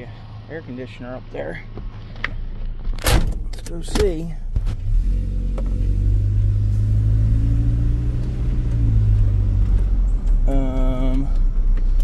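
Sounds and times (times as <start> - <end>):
truck engine humming: 5.5 - 12.0.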